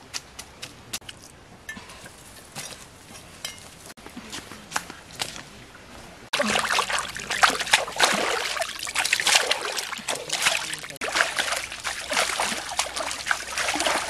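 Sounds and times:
water splashing and sloshing: 5.2s - 14.0s.

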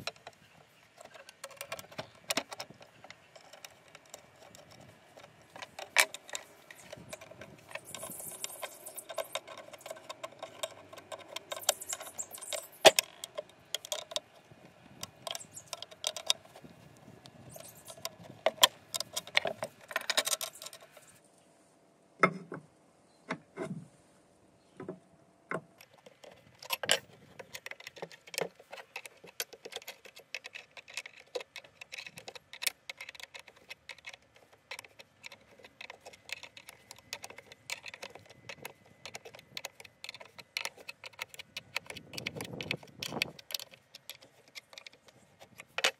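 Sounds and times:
metal parts clinking on steel: 3.3s - 14.2s.

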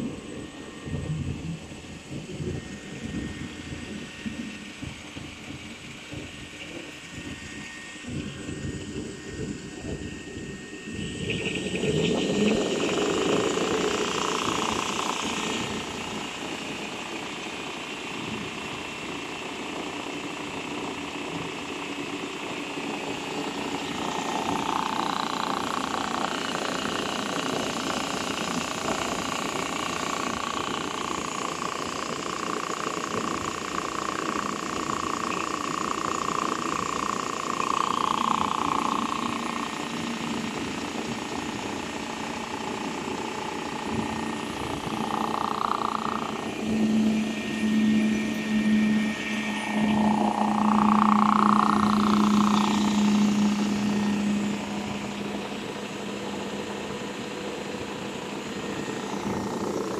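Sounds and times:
low hum: 0.0s - 18.7s, 33.2s - 59.9s
high machine tone: 0.0s - 59.9s
machine motors humming: 0.0s - 59.9s.

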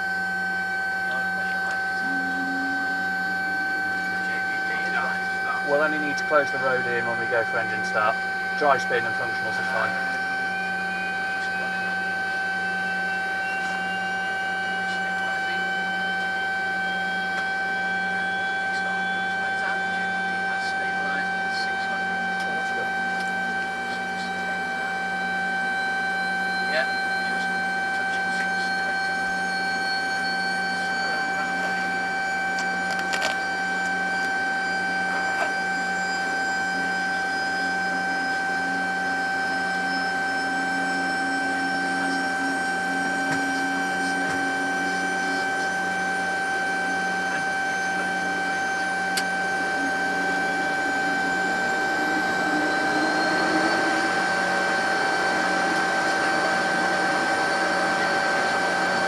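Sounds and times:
aircraft systems whine and hum: 0.0s - 59.0s
faint whine rising in pitch: 0.0s - 59.0s.

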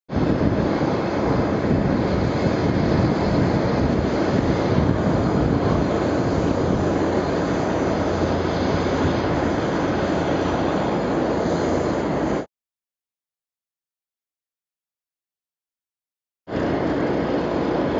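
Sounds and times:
jet engines running: 0.1s - 12.5s, 16.5s - 17.9s.

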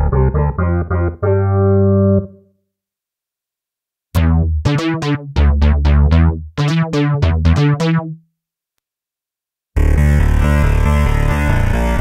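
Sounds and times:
plucked synth notes over bass: 0.0s - 2.3s, 4.2s - 8.2s.

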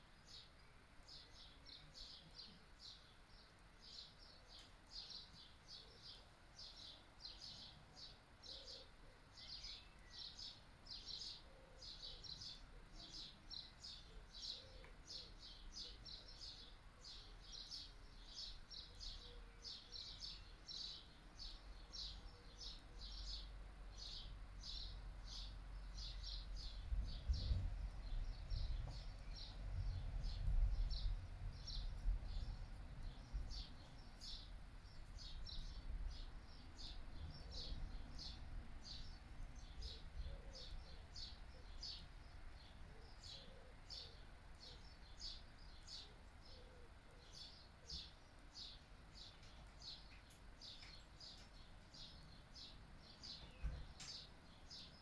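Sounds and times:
wind rumble on microphone: 26.2s - 34.4s.

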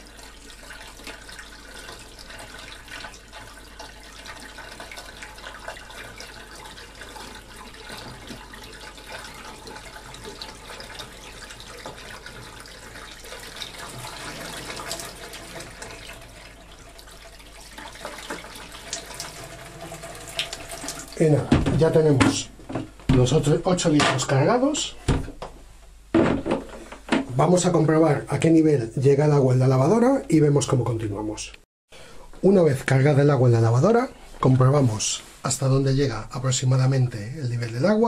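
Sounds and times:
water pouring into washing machine: 0.0s - 22.2s
water splashing: 0.0s - 22.5s.

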